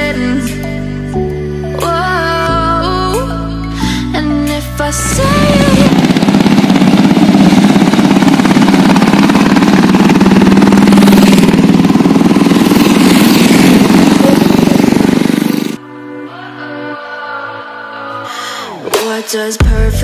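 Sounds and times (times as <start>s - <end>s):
motorcycle engine running: 4.8s - 15.8s.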